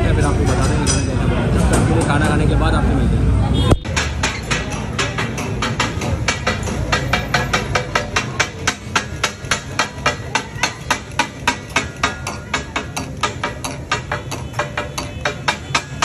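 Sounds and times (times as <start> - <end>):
metal spatulas chopping on griddle: 3.8 - 16.0.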